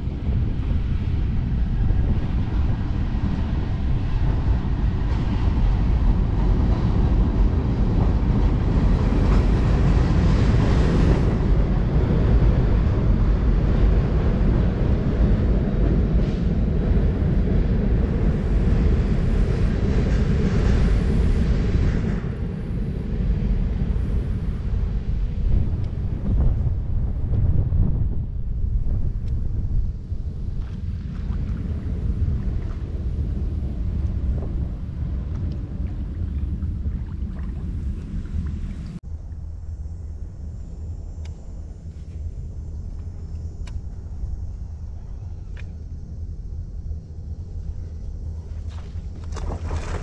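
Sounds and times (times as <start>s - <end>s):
freight train rumbling on bridge: 0.0s - 39.1s.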